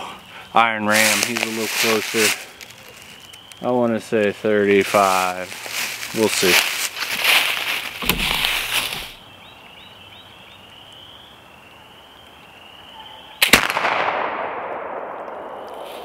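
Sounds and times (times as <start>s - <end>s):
rustling and handling noise: 0.9s - 3.4s, 4.6s - 9.2s
rifle shot: 13.4s - 16.0s.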